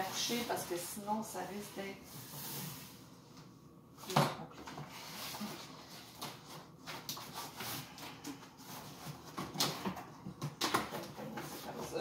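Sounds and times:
cardboard rustling and scraping: 0:00.0 - 0:03.1, 0:04.6 - 0:10.1, 0:10.7 - 0:12.0.

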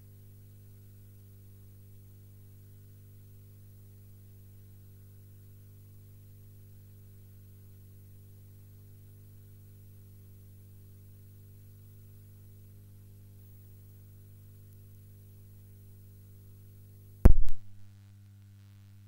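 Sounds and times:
low electrical hum: 0:00.0 - 0:19.0
sudden loud pop: 0:17.2 - 0:17.7.

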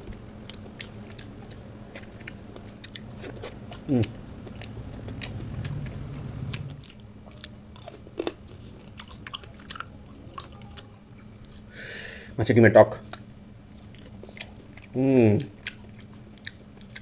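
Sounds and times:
person chewing food: 0:00.0 - 0:11.7, 0:13.0 - 0:17.0.

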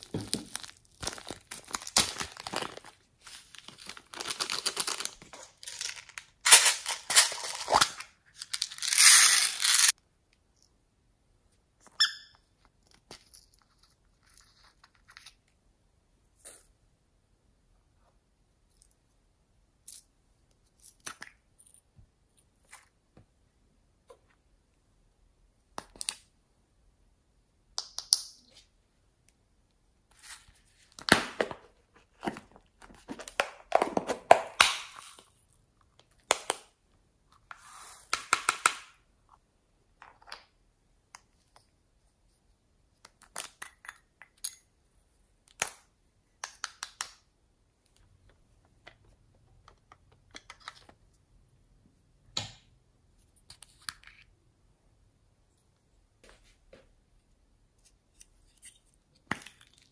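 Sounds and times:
packaging tearing and crinkling: 0:00.2 - 0:09.9.

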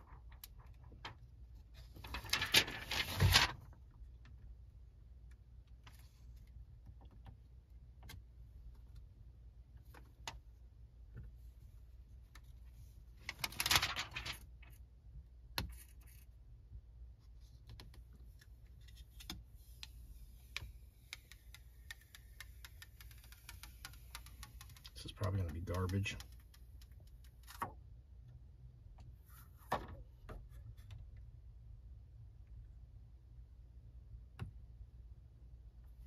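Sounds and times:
plastic sheet rustling: 0:01.9 - 0:03.6, 0:13.2 - 0:14.5.

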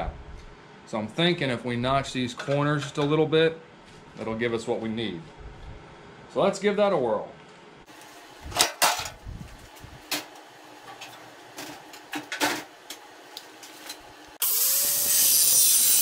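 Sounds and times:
angle grinder whining: 0:14.4 - 0:16.0.

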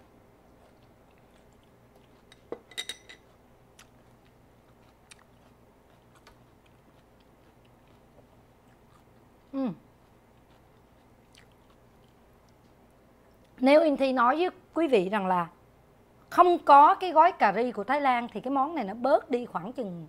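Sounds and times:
bowl and chopsticks clinking: 0:02.3 - 0:03.3.

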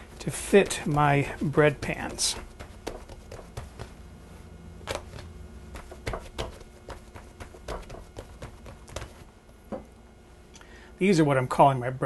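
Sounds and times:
hands slapping bread dough: 0:00.0 - 0:04.1, 0:04.8 - 0:09.3.

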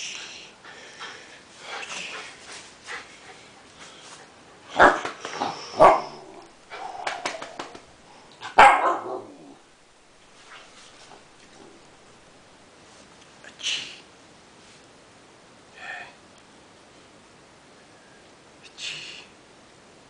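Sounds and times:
puppy barking: 0:04.8 - 0:05.2, 0:05.8 - 0:06.2, 0:08.5 - 0:09.3.

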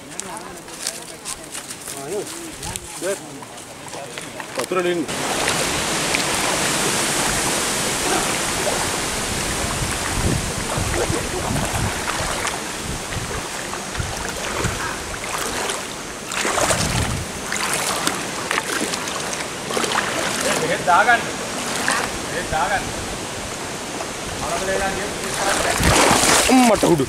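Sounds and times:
steady rushing water: 0:02.2 - 0:27.0
water splashing as someone wades: 0:05.1 - 0:22.3, 0:25.2 - 0:27.0.

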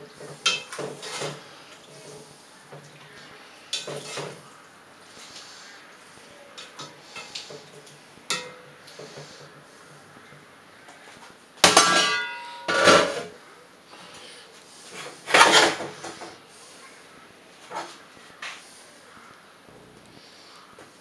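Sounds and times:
metal pots and lids clattering: 0:00.0 - 0:01.4, 0:03.7 - 0:04.4, 0:06.6 - 0:08.8, 0:11.6 - 0:13.4, 0:15.0 - 0:16.4.

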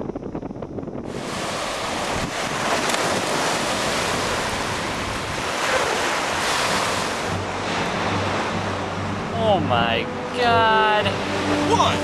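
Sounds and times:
wind on microphone: 0:00.0 - 0:10.0
small waves breaking: 0:01.1 - 0:09.3.

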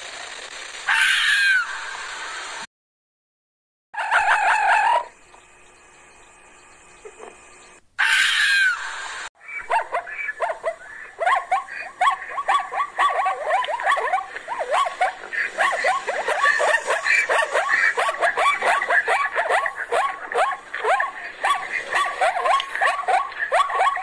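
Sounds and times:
fast high yips: 0:00.9 - 0:01.9, 0:08.0 - 0:24.0
short loud animal call: 0:08.0 - 0:08.9.

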